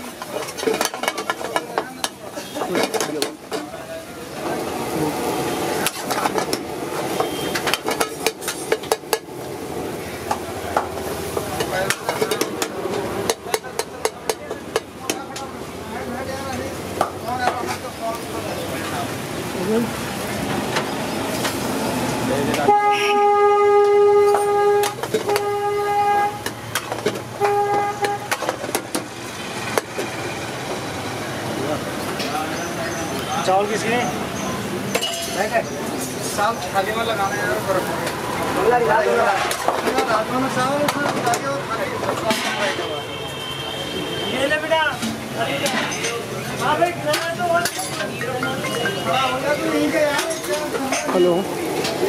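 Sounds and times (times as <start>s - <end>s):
vehicle horn honking: 7.1s - 7.7s, 22.6s - 26.6s, 27.4s - 28.4s, 42.7s - 44.7s.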